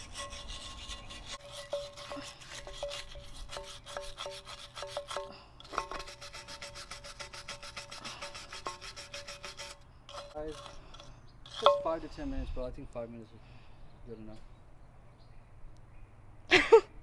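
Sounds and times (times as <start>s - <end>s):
brush scrubbing metal: 0.0s - 11.9s.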